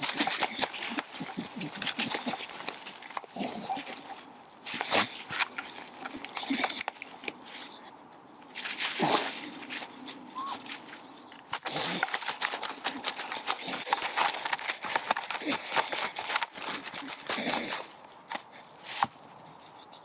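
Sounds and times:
dog gnawing on stick: 0.0 - 7.7, 8.6 - 19.2
dry leaves rustling: 0.0 - 7.9, 8.5 - 19.3.

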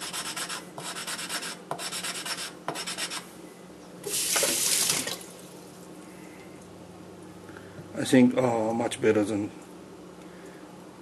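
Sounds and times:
gritty rasping on knife blade: 0.0 - 3.2.

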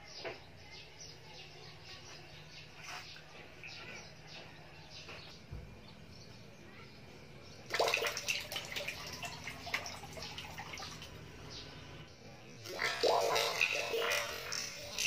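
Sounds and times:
toy boat splashing water: 7.7 - 11.2, 12.7 - 15.0.

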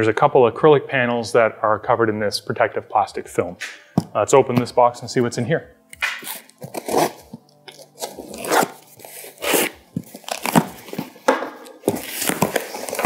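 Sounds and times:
knife slitting packing tape: 6.0 - 10.9, 11.9 - 13.0.

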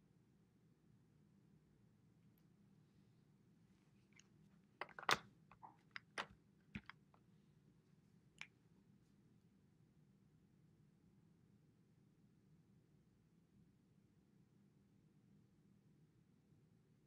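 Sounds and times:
plastic marker clicks and taps: 4.8 - 7.0.

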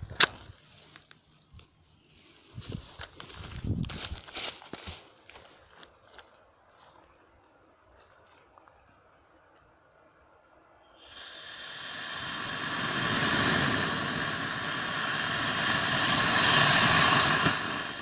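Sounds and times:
rocket motor rushing hiss: 10.9 - 18.0.

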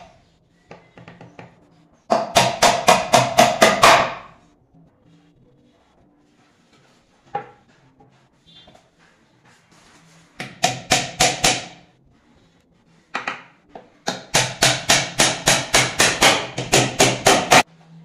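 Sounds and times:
hammer blows on plywood: 14.1 - 17.6.

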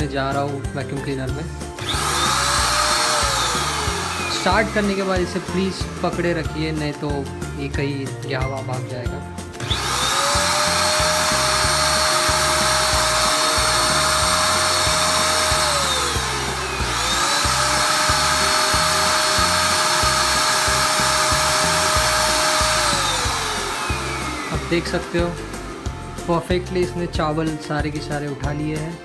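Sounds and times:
vacuum sucking up rice: 1.8 - 6.3, 9.6 - 26.9
handheld vacuum cleaner whining: 1.8 - 6.4, 9.6 - 27.0.

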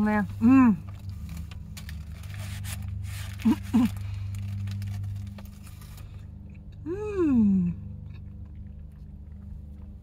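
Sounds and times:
steady low hum: 0.0 - 10.0
woman humming mmm: 6.8 - 7.9
woman chewing food: 7.8 - 10.0.

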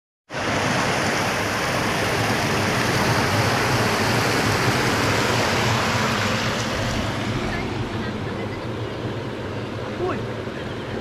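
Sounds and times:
small waterfall rushing: 0.3 - 8.4.

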